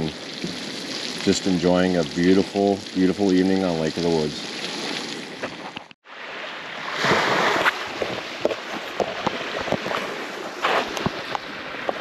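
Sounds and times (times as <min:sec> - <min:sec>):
wind hiss on microphone: 0:00.0 - 0:05.3.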